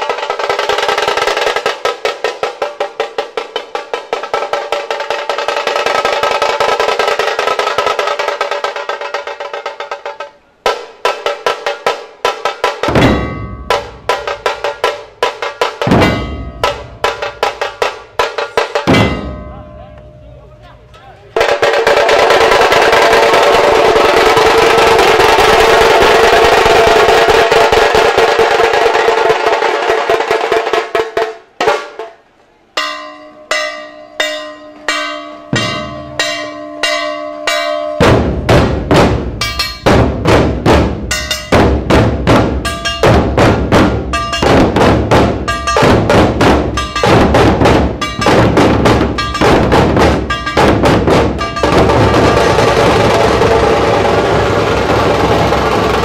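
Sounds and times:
snare drum roll: 0.0s - 19.5s, 21.4s - 32.2s, 38.0s - 56.0s
barrel drums heavy beat: 0.0s - 32.2s, 32.8s - 56.0s
cymbals: 0.0s - 56.0s.

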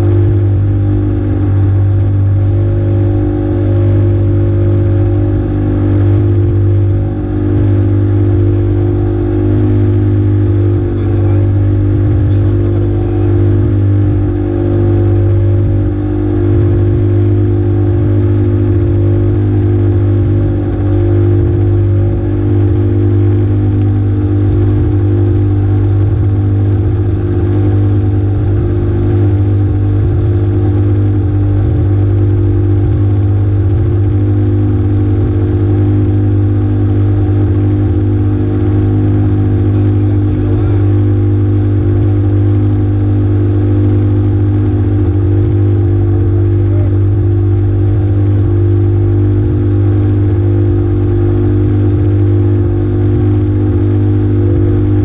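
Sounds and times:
small engine running: 0.0s - 55.0s.

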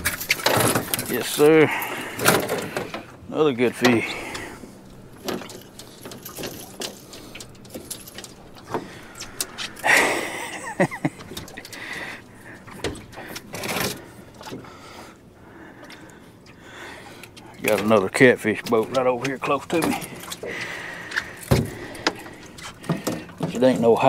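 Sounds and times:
fishing gear knocking and rattling: 0.0s - 3.1s, 5.1s - 10.0s.

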